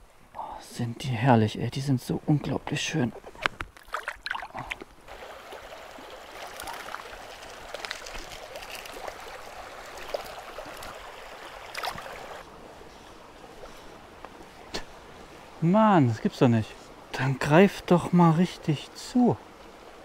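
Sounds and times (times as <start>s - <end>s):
brook trickling over gravel: 3.8s - 12.4s.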